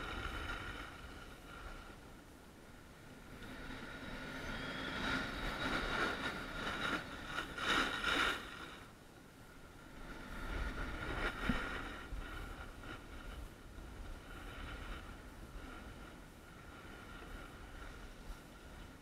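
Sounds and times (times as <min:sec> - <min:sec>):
skis scraping over snow: 0:03.0 - 0:08.9, 0:09.8 - 0:19.0.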